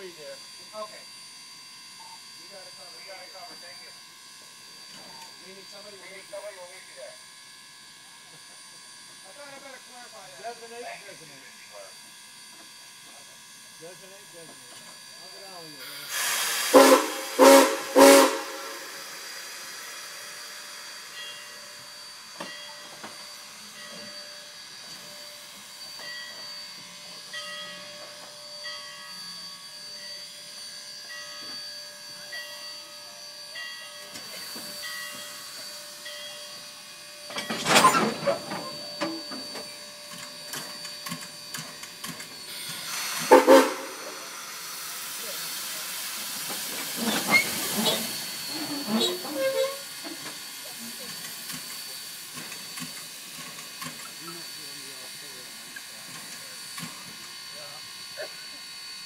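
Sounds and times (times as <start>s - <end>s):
steam locomotive hissing: 0.0s - 59.0s
loud short steam bursts: 15.4s - 22.3s, 42.4s - 58.6s.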